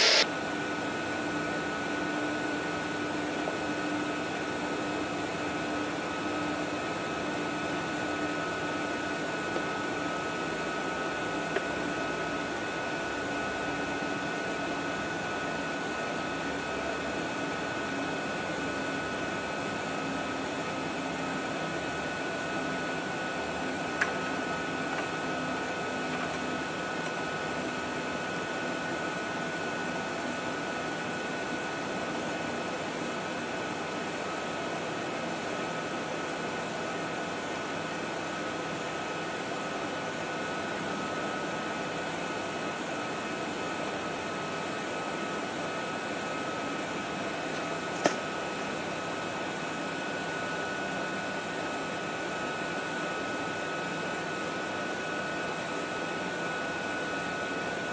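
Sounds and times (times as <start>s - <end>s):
machinery drone with high whine: 0.0s - 31.2s.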